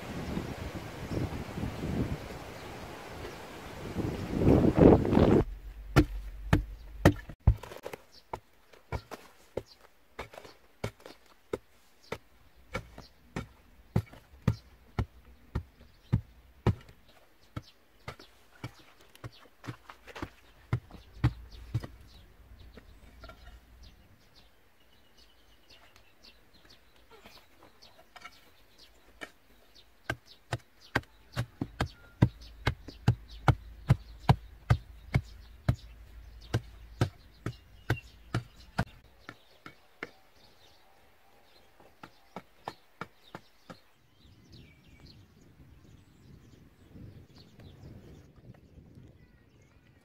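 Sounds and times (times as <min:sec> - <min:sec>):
hand tool chipping into clay: 0:05.9 - 0:22.0, 0:30.0 - 0:40.2.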